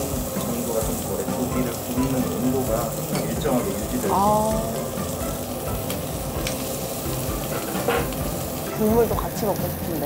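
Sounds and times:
meat sizzling on a grill plate: 0:00.0 - 0:10.0.

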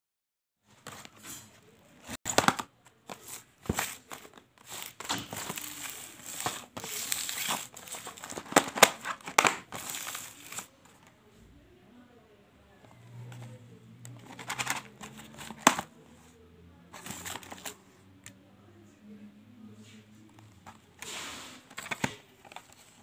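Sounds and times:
cardboard boxes rustling and clicking: 0:02.3 - 0:10.7, 0:14.2 - 0:15.9, 0:17.0 - 0:17.8, 0:20.7 - 0:23.0.

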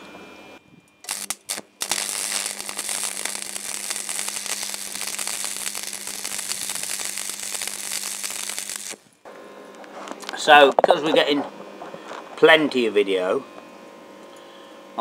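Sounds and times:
welder humming: 0:00.0 - 0:13.4
welding arc crackling: 0:01.0 - 0:09.2.

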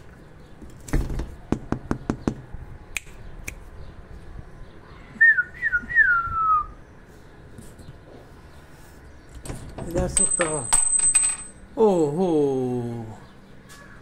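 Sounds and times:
person whistling: 0:05.2 - 0:06.8.

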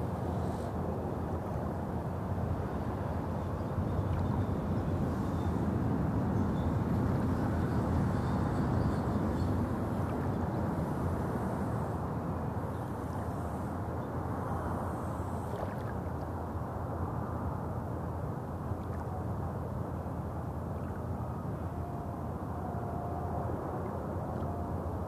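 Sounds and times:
road traffic rumble: 0:00.0 - 0:15.5.

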